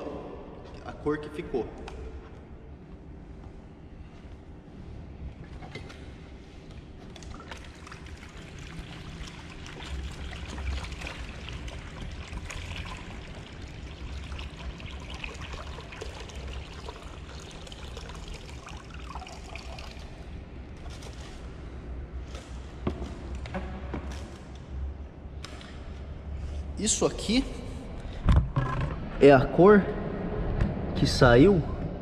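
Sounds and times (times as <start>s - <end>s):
water and rice pouring into basin: 7.2s - 20.3s.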